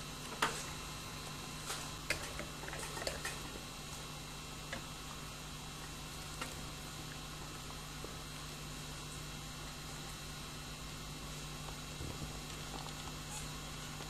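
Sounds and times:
low mains hum: 0.0 - 14.0.

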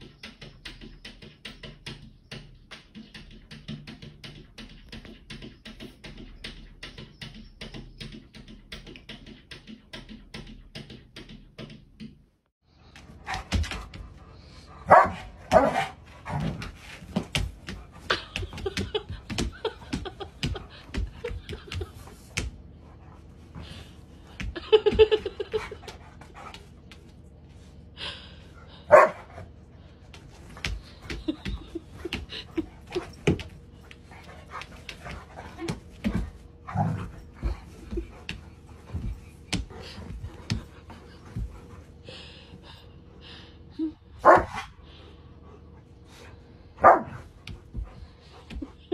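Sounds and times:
dog barking: 14.9 - 16.0, 28.9 - 29.2, 46.8 - 47.2.

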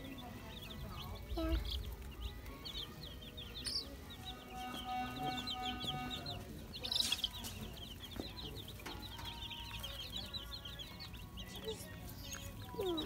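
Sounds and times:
baby chicks peeping: 0.0 - 13.0.

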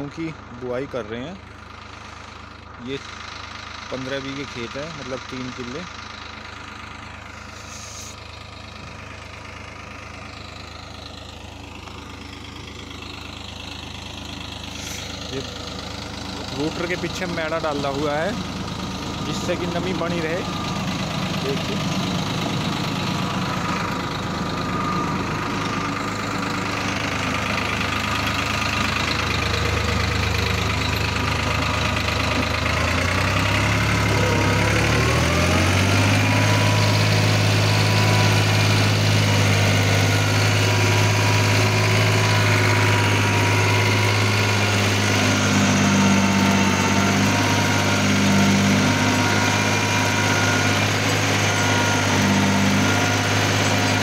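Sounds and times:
tractor diesel engine under load: 0.0 - 54.0
rotary tiller through soil: 7.3 - 8.2, 12.4 - 54.0.

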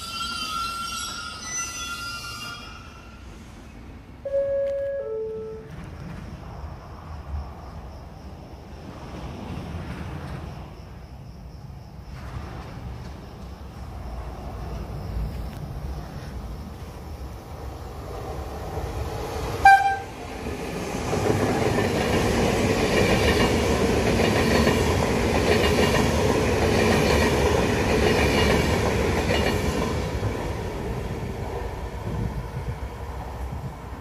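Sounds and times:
train rumble and wheel clatter: 0.0 - 34.0
train horn toot: 4.2 - 5.9, 19.6 - 20.2.

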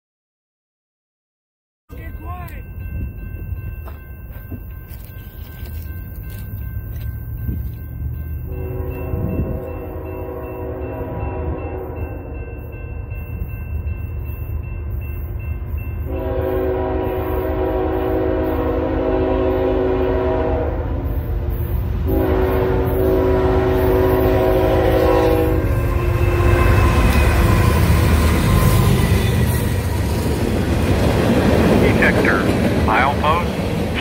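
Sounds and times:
freight train rumbling past: 1.9 - 34.0
locomotive air horn blasts: 8.5 - 12.3, 16.1 - 21.0, 22.0 - 27.9.

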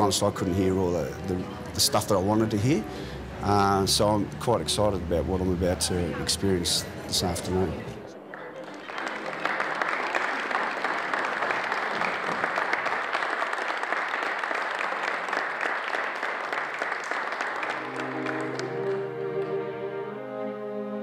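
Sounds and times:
string quartet bowed notes: 0.0 - 6.2, 17.7 - 21.0
audience applauding: 8.2 - 19.8.

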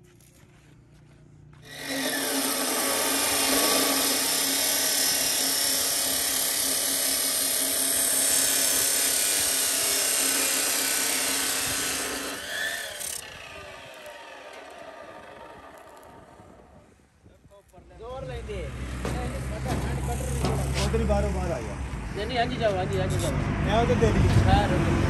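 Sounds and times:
cut-off saw grinding steel pipe: 1.6 - 16.7.

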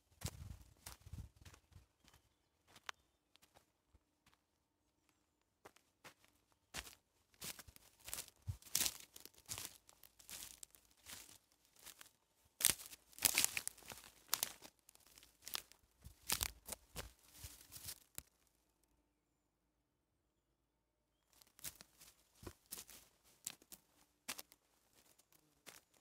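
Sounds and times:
footsteps snapping dry twigs: 6.8 - 18.4, 21.4 - 26.0.

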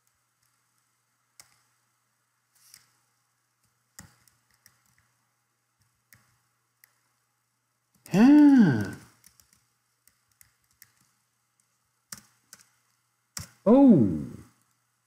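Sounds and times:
keyboard and mouse clicks: 0.0 - 1.8, 2.6 - 5.2, 5.8 - 7.2, 7.9 - 13.6.

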